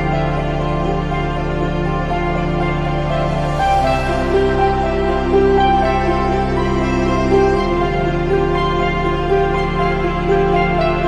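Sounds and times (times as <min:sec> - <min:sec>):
soft background music: 0:00.0 - 0:11.0.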